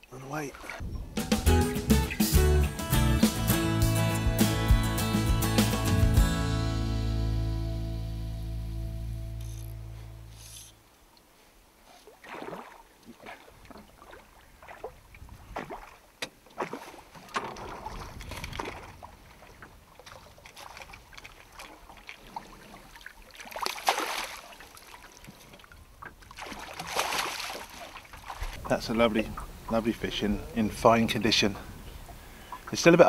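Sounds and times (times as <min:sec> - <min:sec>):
fish splashing in water: 0:12.0 - 0:28.7
water slapping against boat: 0:12.1 - 0:29.8.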